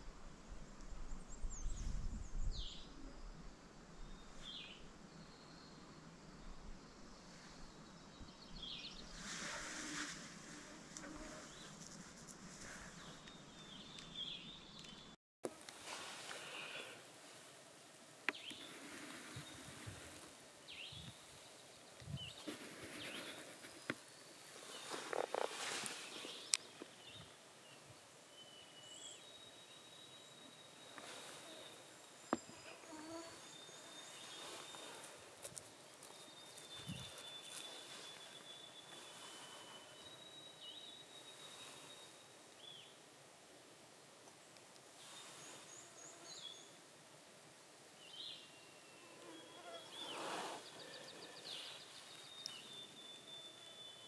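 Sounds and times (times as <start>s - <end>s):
soft whoosh of noise: 15.5s - 28.3s
songbirds chirping and singing: 18.3s - 35.2s, 35.9s - 42.9s, 48.0s - 54.0s
faint high bird calls: 28.4s - 35.2s, 35.9s - 43.0s, 48.0s - 54.0s.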